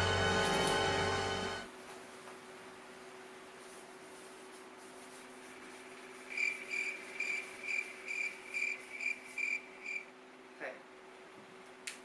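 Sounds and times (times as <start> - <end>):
faint steady hum: 0.0 - 12.0
cricket chirping: 6.3 - 10.1.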